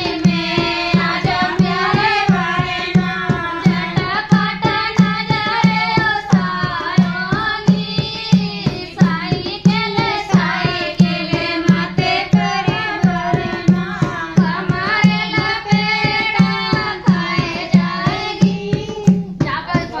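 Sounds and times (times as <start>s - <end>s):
hand drum rhythm: 0.0s - 20.0s
women singing folk song: 0.0s - 20.0s.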